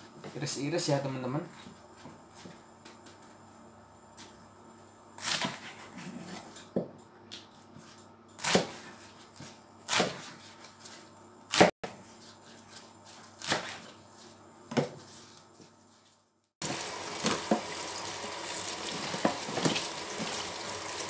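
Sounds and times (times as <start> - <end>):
knife chopping greens on wood: 8.4 - 10.9, 11.5 - 13.9.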